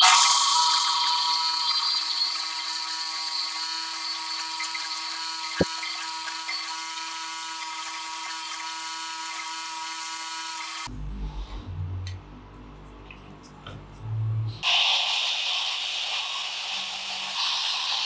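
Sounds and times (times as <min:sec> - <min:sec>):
bench grinder whining: 0:00.0 - 0:10.9.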